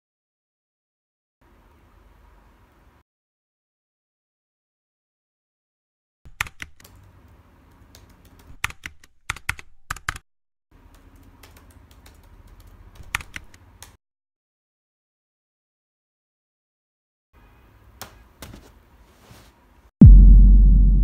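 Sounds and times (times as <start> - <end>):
typing on laptop keyboard: 6.3 - 10.2, 10.9 - 14.0.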